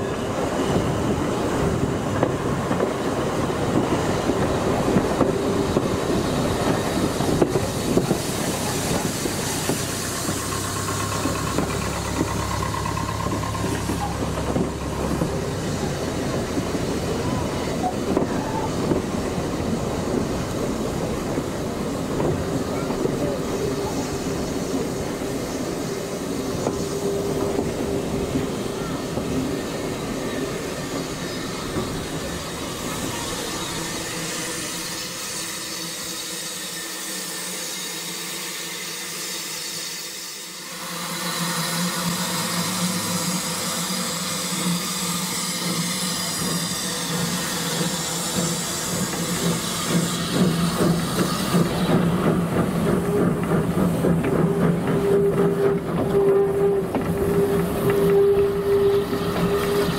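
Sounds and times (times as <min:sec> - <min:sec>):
train wheels rumbling on rails: 0:00.0 - 0:59.9
wheels clicking over rail joints: 0:03.6 - 0:34.7, 0:45.7 - 0:59.9.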